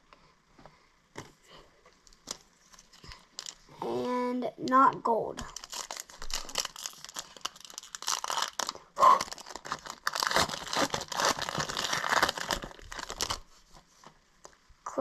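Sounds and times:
foil wrapper tearing and crinkling: 2.2s - 3.6s, 5.4s - 13.5s.

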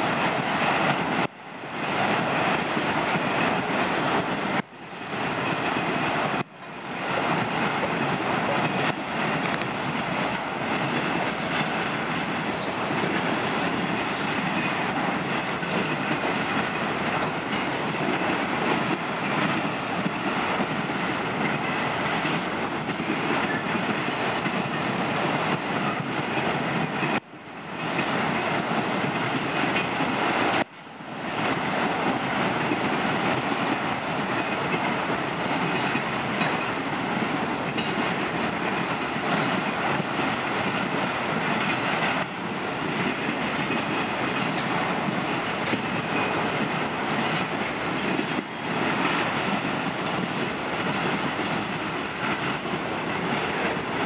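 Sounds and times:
freight train rumbling past: 0.0s - 54.0s
wheels clacking over rail joints: 0.0s - 54.0s.

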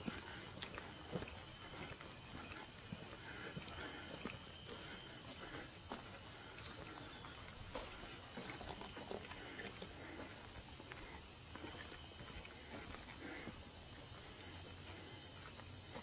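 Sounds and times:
footsteps crunching on trail: 0.0s - 16.0s
insects chorus: 0.0s - 16.0s.

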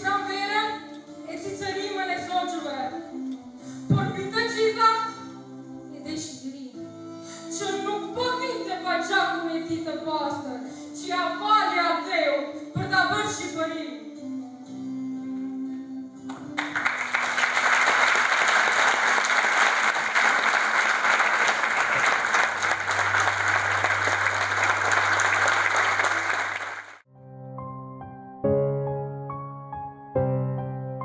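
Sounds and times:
audience applauding: 16.3s - 27.0s
piano music: 21.7s - 31.0s.

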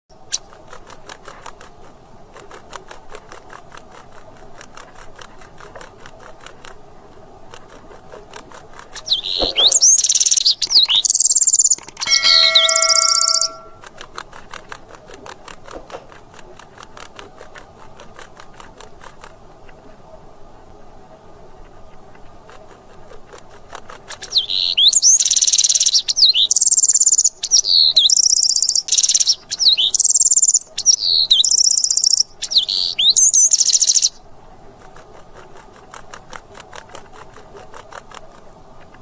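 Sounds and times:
wren singing: 9.0s - 13.8s, 24.3s - 34.2s
steady low tone: 12.0s - 13.8s.

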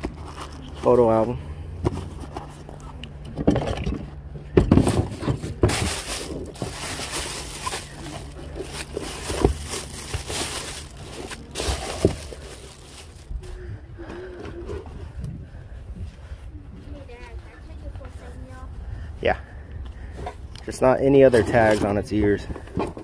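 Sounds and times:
plastic bag rustling: 4.7s - 13.6s.

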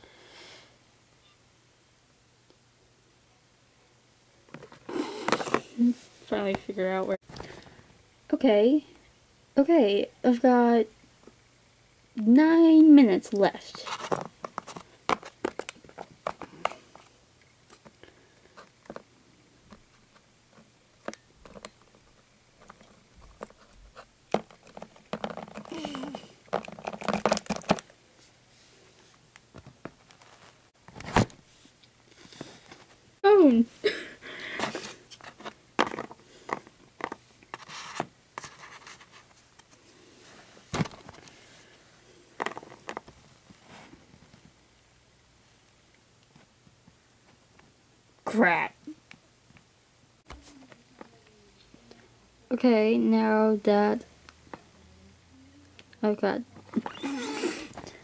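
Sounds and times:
plastic toy figures handled: 13.7s - 17.1s, 19.7s - 28.0s, 34.6s - 39.8s, 42.4s - 43.2s.

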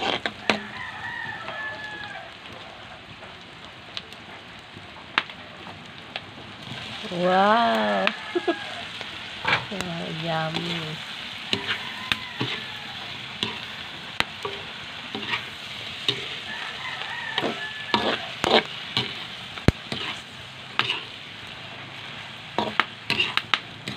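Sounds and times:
spatula scraping a pan: 0.0s - 0.7s, 10.5s - 19.3s, 19.9s - 21.2s, 22.5s - 23.9s
shrimp sizzling in a wok: 0.0s - 23.9s.

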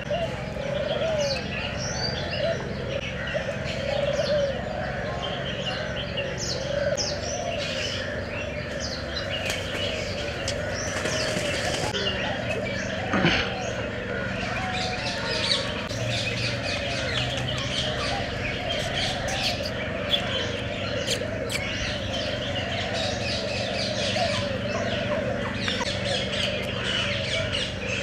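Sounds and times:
birds chirping: 0.0s - 28.0s
steady low hum: 0.0s - 28.0s.

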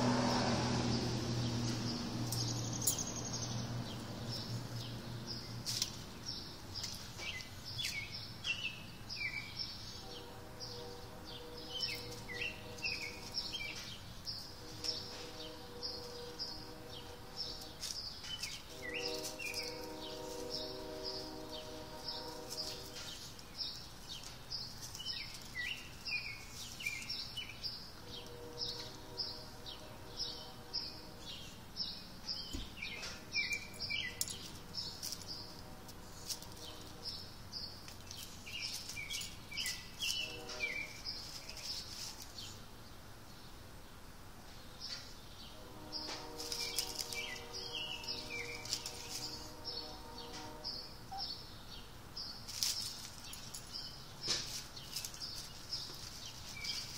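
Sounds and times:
dry leaves rustling: 0.1s - 43.0s, 45.7s - 51.5s, 52.2s - 56.9s
small birds chirping: 1.0s - 56.9s.

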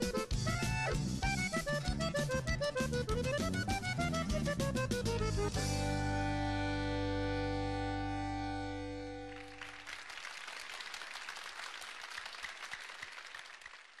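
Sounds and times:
accordion band chord: 0.0s - 9.9s
applause: 9.3s - 14.0s.

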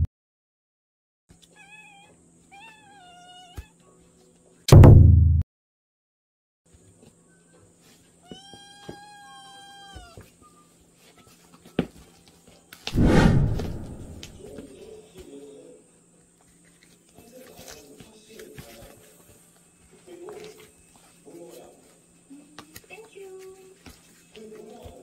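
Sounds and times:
sharp knock: 4.7s - 5.4s.

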